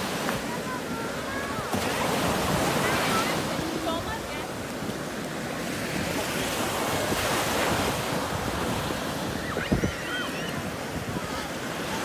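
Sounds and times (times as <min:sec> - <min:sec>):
surf breaking on shore: 0:00.0 - 0:12.0
wind buffeting microphone: 0:00.0 - 0:12.0.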